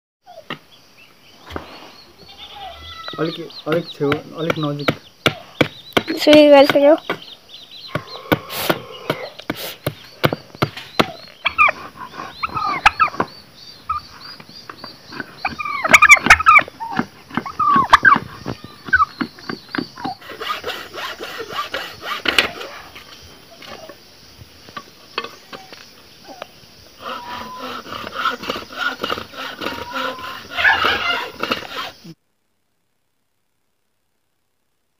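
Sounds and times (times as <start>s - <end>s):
fowl calling: 1.4s - 7.1s, 7.7s - 9.8s, 11.0s - 24.0s, 25.2s - 32.2s
blade chopping wood: 3.7s - 7.3s, 18.8s - 22.7s, 27.6s - 32.0s
hacksaw cutting wood: 19.2s - 22.8s, 27.0s - 32.0s.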